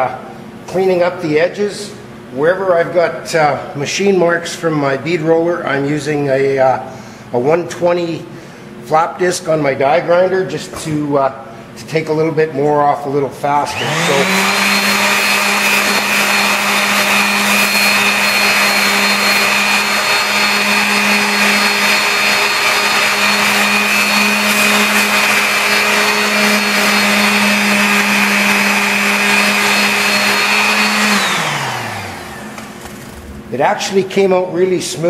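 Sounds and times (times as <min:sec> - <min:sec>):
orbital sander humming and whining: 0:13.6 - 0:33.1.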